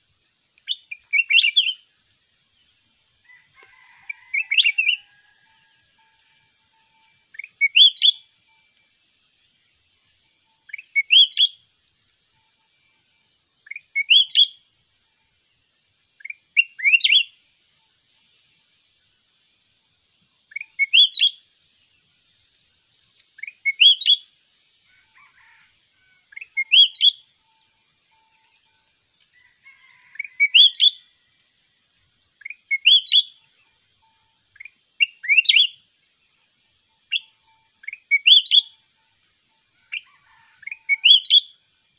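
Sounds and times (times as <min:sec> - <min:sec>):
bulbul singing: 0:00.0 - 0:01.9, 0:06.7 - 0:08.8, 0:10.6 - 0:11.6, 0:13.6 - 0:14.6, 0:16.2 - 0:17.4, 0:20.4 - 0:21.5, 0:23.0 - 0:24.3, 0:26.3 - 0:28.7, 0:32.4 - 0:35.9, 0:37.0 - 0:39.0, 0:39.9 - 0:41.6.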